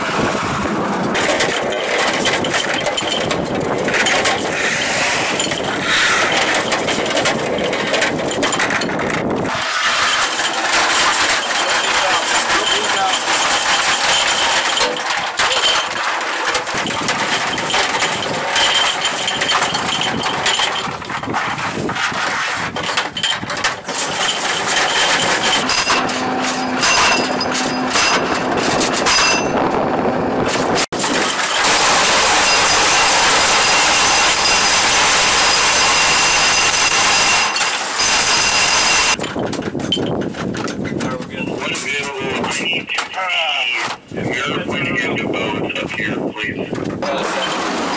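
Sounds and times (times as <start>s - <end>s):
loud rushing noise: 0.0s - 2.4s, 3.7s - 7.4s, 9.1s - 14.6s
metal clinking and clattering: 1.1s - 29.6s, 30.5s - 42.6s.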